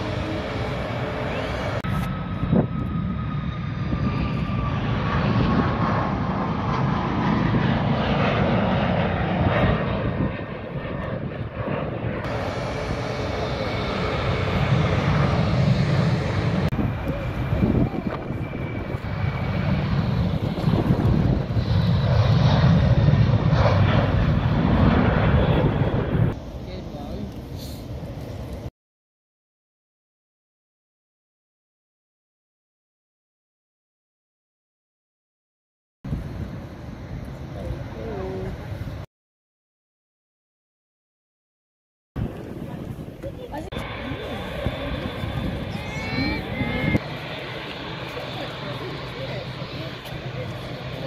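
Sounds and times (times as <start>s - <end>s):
jet engines at take-off power: 0.0s - 28.7s, 36.1s - 39.1s, 42.2s - 51.0s.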